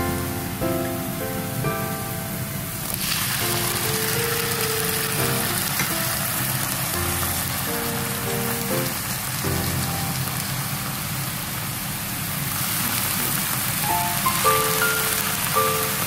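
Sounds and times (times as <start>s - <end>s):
background music with held notes: 0.0s - 2.8s, 3.4s - 10.4s, 13.8s - 16.0s
food sizzling in a frying pan: 2.8s - 16.0s.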